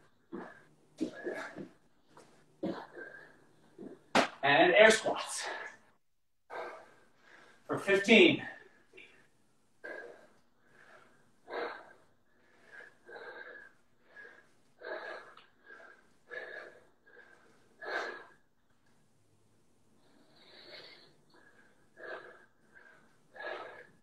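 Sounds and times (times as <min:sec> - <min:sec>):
man breathing hard: 0:09.8 - 0:18.5, 0:19.9 - 0:24.0.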